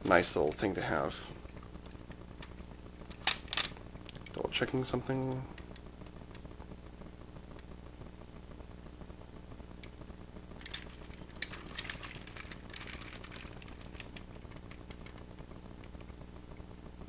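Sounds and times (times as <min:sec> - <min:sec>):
faint low hum: 0:00.0 - 0:17.0
plastic toy parts clicking: 0:03.1 - 0:04.4, 0:10.6 - 0:15.2.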